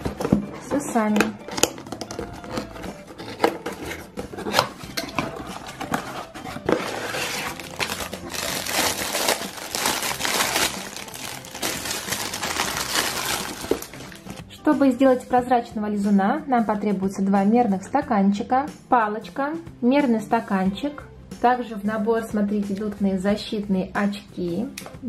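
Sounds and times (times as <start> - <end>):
cardboard box opening: 1.5 - 14.2
plastic bag crinkling: 6.7 - 14.4.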